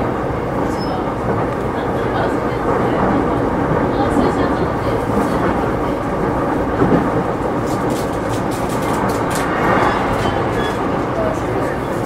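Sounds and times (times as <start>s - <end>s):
train wheels rumbling on track: 0.0s - 12.0s.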